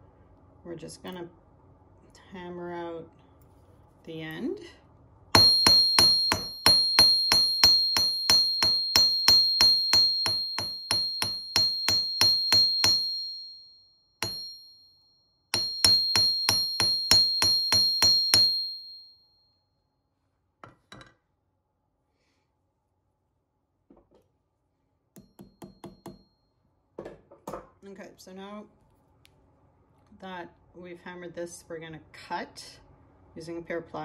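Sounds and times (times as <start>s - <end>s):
hammer striking metal on anvil: 5.4s - 13.4s, 14.2s - 14.7s, 15.5s - 18.8s, 25.2s - 26.2s.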